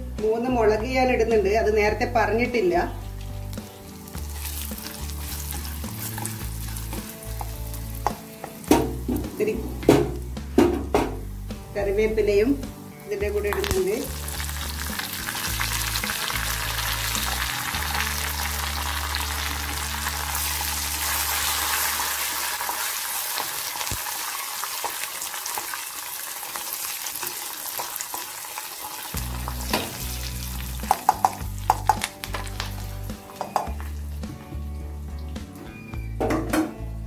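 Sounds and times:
oil sizzling in a pan: 2.5s - 10.6s, 12.4s - 36.0s
spoon knocking against pan: 30.8s - 32.1s, 33.4s - 33.8s.

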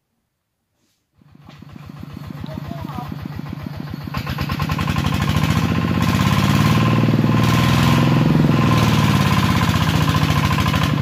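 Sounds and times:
walking tractor diesel engine running: 1.2s - 11.0s.

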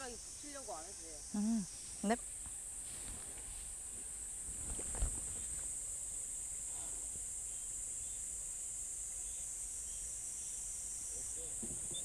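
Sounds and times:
insects chorus: 0.0s - 12.0s.

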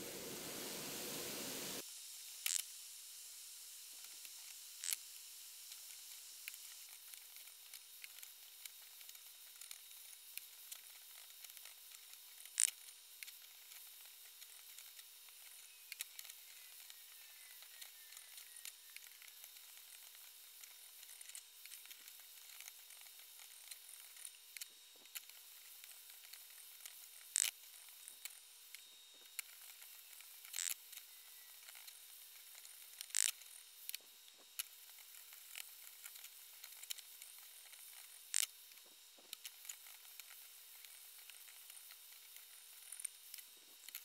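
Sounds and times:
onion sizzling in a frying pan: 0.0s - 2.2s.

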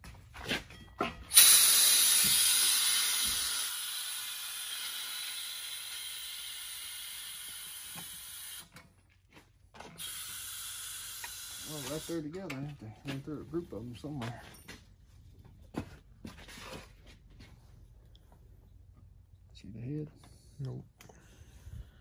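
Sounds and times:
compressed air hissing: 1.3s - 8.6s, 10.0s - 12.2s.

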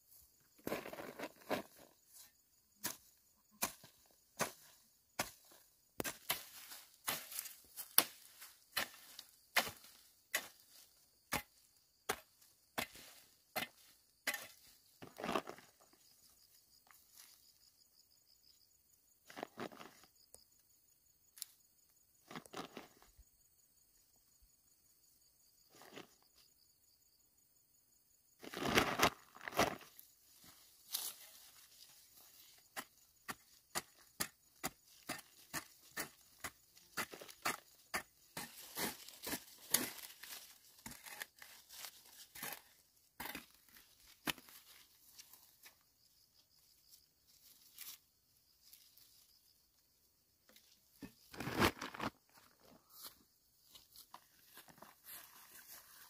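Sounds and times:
soil scuffs and rustles: 0.0s - 17.7s, 19.2s - 20.2s, 25.7s - 26.5s, 28.4s - 49.5s, 50.5s - 56.0s
hoe chopping into dry soil: 2.8s - 15.7s, 32.6s - 44.6s
small scrapes: 28.4s - 45.4s.

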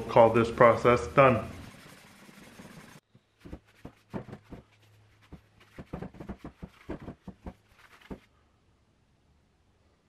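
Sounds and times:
cloth scrubbing metal surface: 0.6s - 8.3s.

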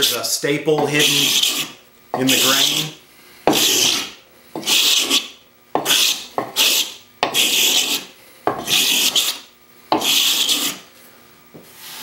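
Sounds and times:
scraper blade scraping wood: 0.8s - 10.9s.

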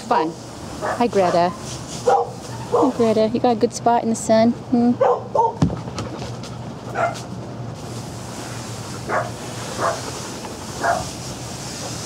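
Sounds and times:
dog barking: 0.8s - 3.0s, 5.0s - 5.6s, 6.9s - 7.3s, 9.1s - 10.0s, 10.8s - 11.1s.

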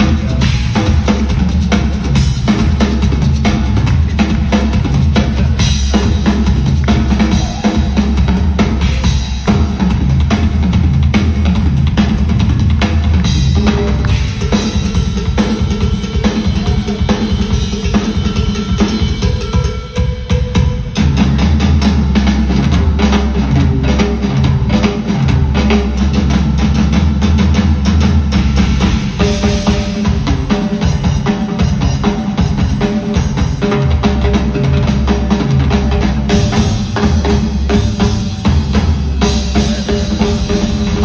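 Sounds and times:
rock drum solo: 0.0s - 41.0s.

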